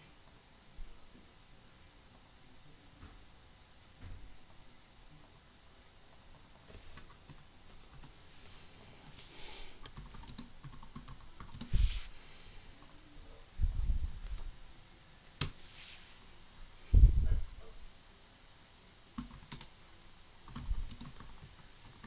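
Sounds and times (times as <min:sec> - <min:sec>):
dull low thumps: 0:13.6 - 0:14.3, 0:16.9 - 0:17.6.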